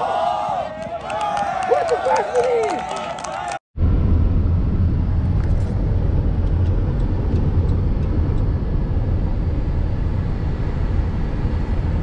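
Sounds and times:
road and engine rumble: 0:03.8 - 0:12.0.

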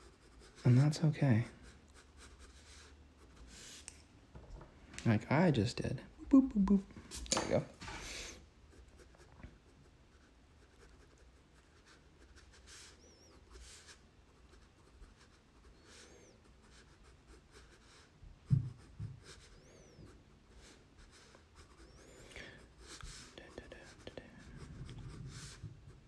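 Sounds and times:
pencil sketching on paper: 0:00.0 - 0:03.8, 0:08.7 - 0:26.0
dull thump: 0:18.5 - 0:19.2.

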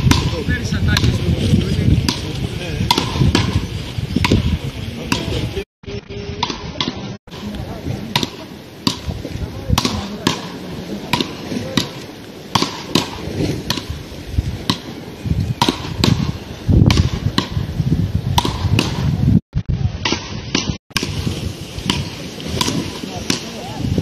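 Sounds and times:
paddles striking a ball: 0:00.0 - 0:01.3, 0:02.0 - 0:05.4, 0:06.4 - 0:14.0, 0:14.6 - 0:14.9.

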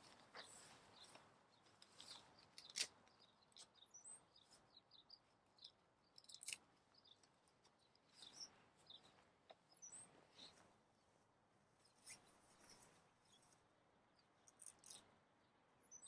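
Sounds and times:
tent fittings clicking: 0:01.8 - 0:03.8
high bird chirps: 0:07.8 - 0:09.1.

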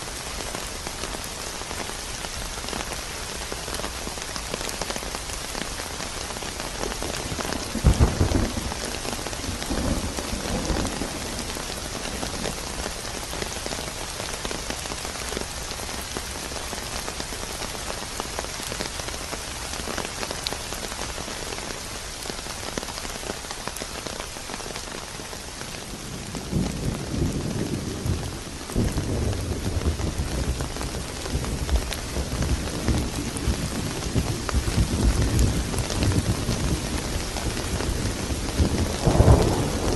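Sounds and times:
steady rain falling: 0:00.0 - 0:39.9
low rumbles of thunder: 0:07.2 - 0:12.9, 0:25.9 - 0:39.9
thunderclap: 0:37.8 - 0:39.9.

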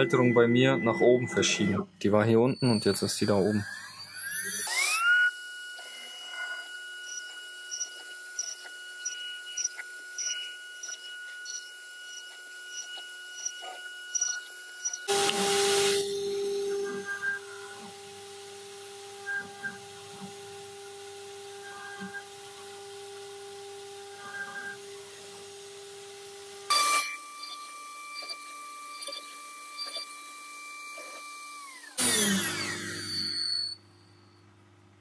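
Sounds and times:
router spindle whine: 0:00.0 - 0:34.0
bit cutting wood bursts: 0:02.6 - 0:16.8, 0:26.7 - 0:33.4.

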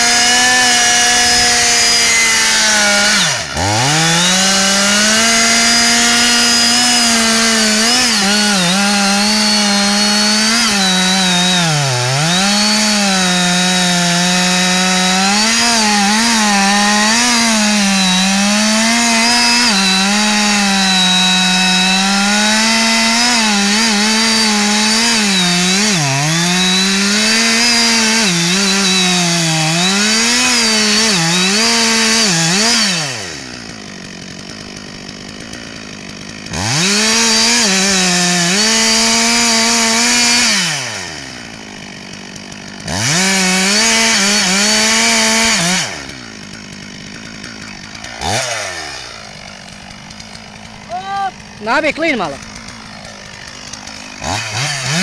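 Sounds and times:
chainsaw cutting through wood: 0:00.0 - 0:55.0.

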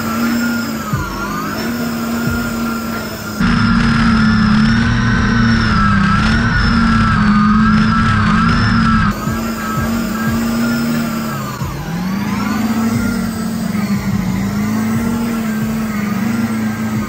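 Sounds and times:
truck engine revving hard: 0:00.0 - 0:17.0.

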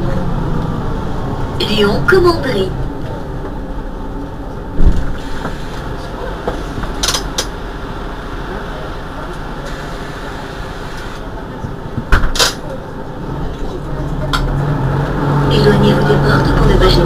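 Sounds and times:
bus engine idling: 0:00.0 - 0:17.0
loud thump: 0:04.8 - 0:05.6.

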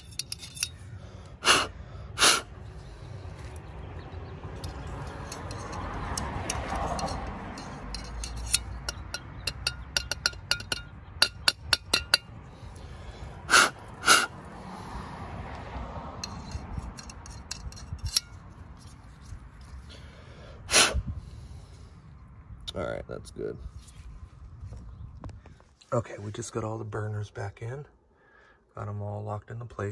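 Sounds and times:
metal rod tapping and scraping: 0:00.0 - 0:00.9, 0:04.6 - 0:12.4, 0:13.5 - 0:14.3, 0:16.2 - 0:19.9.

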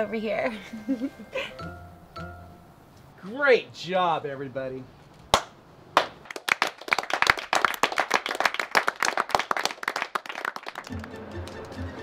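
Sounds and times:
people clapping: 0:05.3 - 0:12.0.

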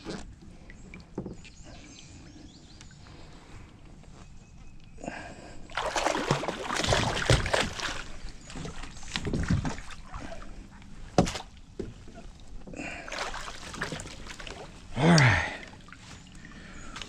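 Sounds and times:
water splashing and sloshing: 0:05.0 - 0:17.0.

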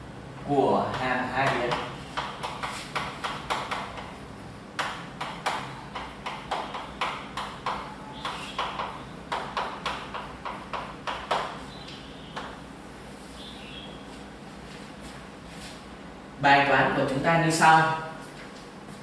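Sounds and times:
chalk tapping on blackboard: 0:00.9 - 0:04.2, 0:04.8 - 0:11.6.

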